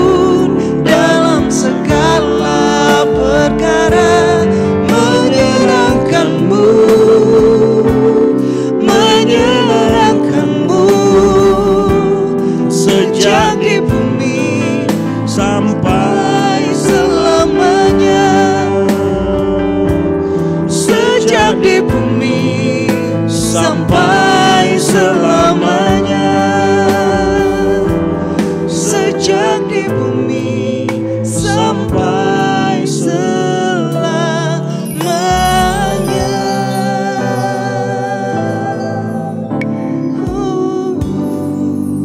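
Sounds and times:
electronic keyboard chords: 0.0 - 42.0
man singing: 0.0 - 42.0
woman singing: 28.9 - 39.5.

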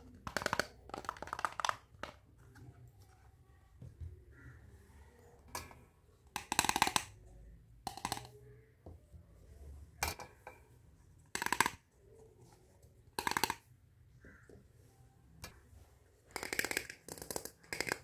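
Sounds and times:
plastic toy pieces clattering: 0.1 - 2.2, 7.9 - 8.3, 13.2 - 13.6, 16.3 - 18.0.

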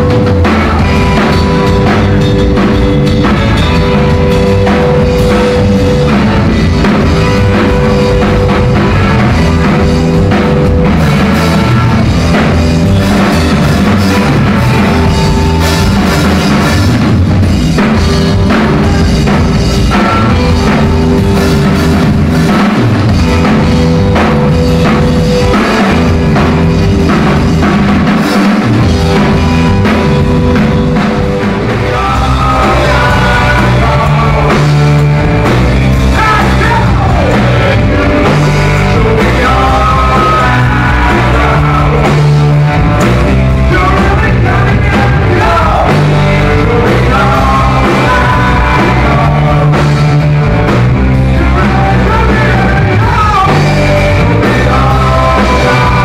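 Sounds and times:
man singing: 0.0 - 10.0, 31.5 - 56.0
bass guitar: 0.0 - 56.0
drum kit: 0.0 - 56.0.

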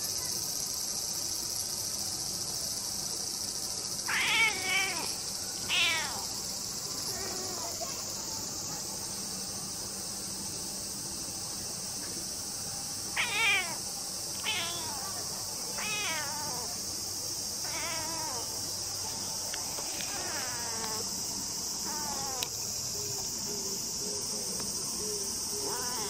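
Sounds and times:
cicadas droning: 0.0 - 26.0
cat meowing: 4.0 - 6.3, 13.2 - 13.8, 14.4 - 16.8, 17.6 - 18.5, 20.0 - 21.0, 21.8 - 22.5.

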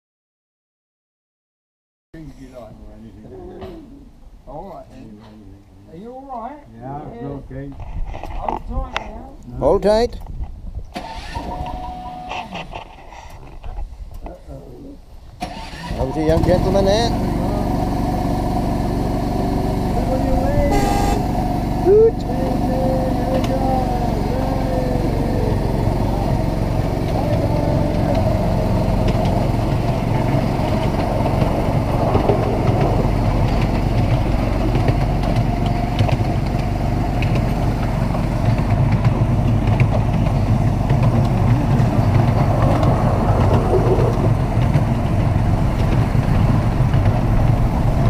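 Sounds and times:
miniature train engine humming: 16.7 - 48.0.

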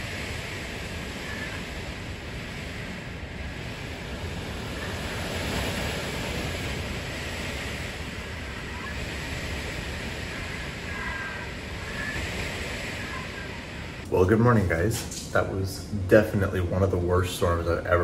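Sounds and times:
strong wind rushing: 0.0 - 18.0.

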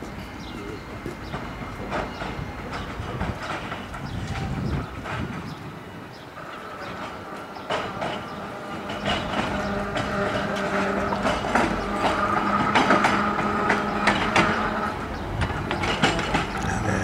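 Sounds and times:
tram wheels clicking on rail joints: 0.0 - 17.0
tram whine: 0.0 - 17.0.

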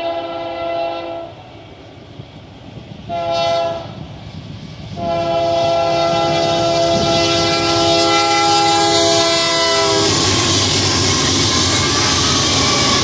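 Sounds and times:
locomotive air horn blast: 0.0 - 1.4, 3.1 - 4.0, 5.0 - 13.0
locomotive passing: 0.0 - 13.0.

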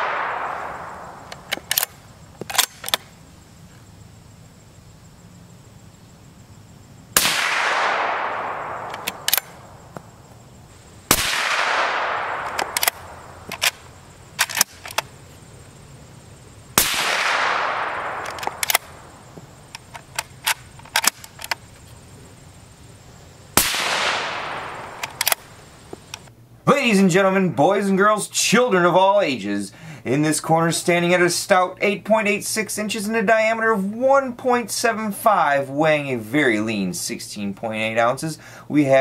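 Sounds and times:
suppressed rifle shots with echo: 0.0 - 3.0, 7.2 - 9.8, 11.1 - 15.0, 16.8 - 21.2, 23.6 - 25.6
rifle bolt clicks: 1.2 - 3.1, 8.6 - 9.6, 12.3 - 13.8, 14.4 - 15.1, 17.0 - 19.0, 19.7 - 21.6, 24.7 - 25.5.

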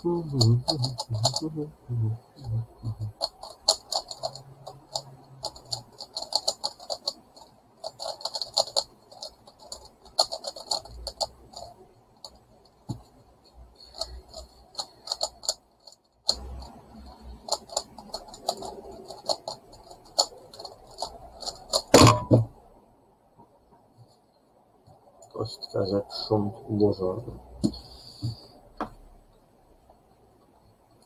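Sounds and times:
plastic puzzle clicking: 0.3 - 1.5, 2.8 - 13.1, 13.8 - 22.1.

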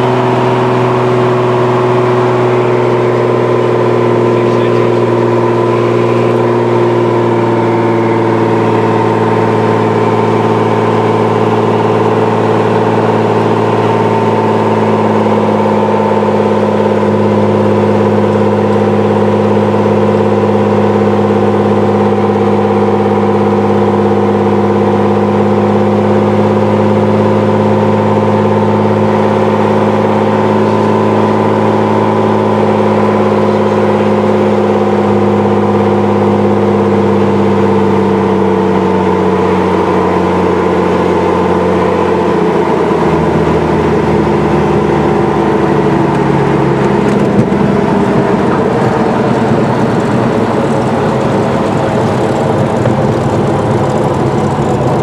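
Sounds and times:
propeller plane engine droning: 0.0 - 55.0.

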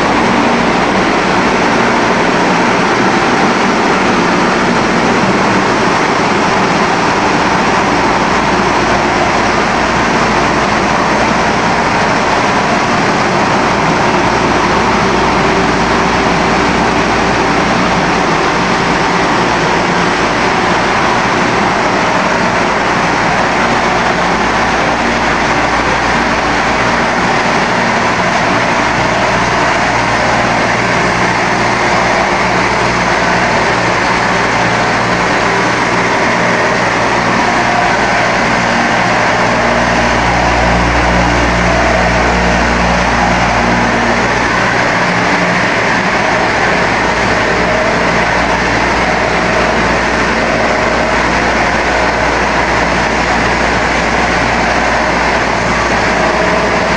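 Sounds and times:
deep hum: 0.0 - 56.9
factory machinery din: 0.0 - 56.9.

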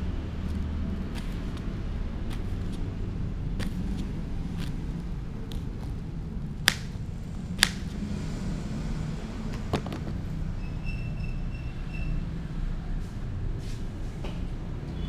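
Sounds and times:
low background rumble: 0.0 - 10.5
knife slicing raw potato: 7.6 - 7.9.

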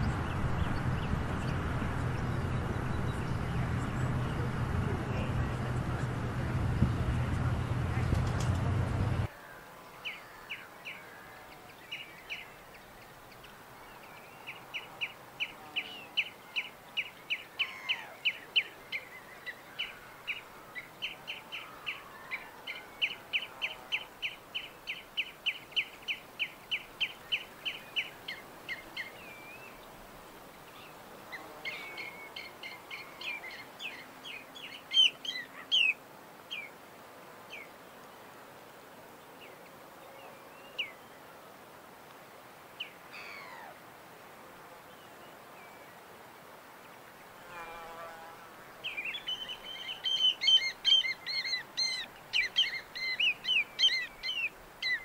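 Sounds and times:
small birds chirping: 0.0 - 9.2, 9.9 - 36.7, 48.8 - 55.0.

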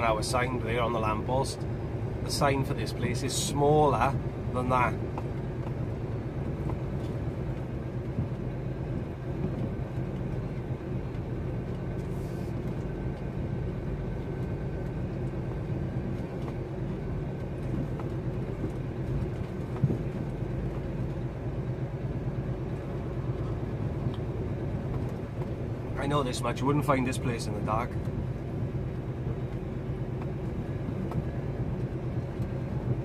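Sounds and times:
diesel engine running: 0.0 - 33.0.

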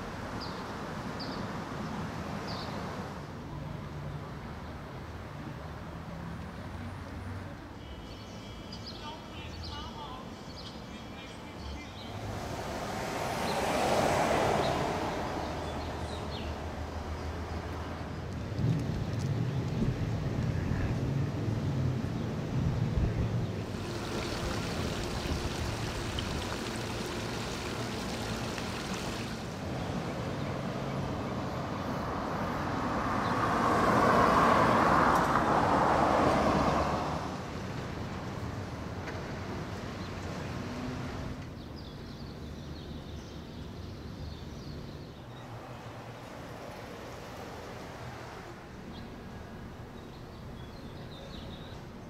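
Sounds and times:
street traffic noise: 0.0 - 52.0
vehicle passing by: 12.1 - 17.9, 18.6 - 37.8, 40.1 - 41.4.

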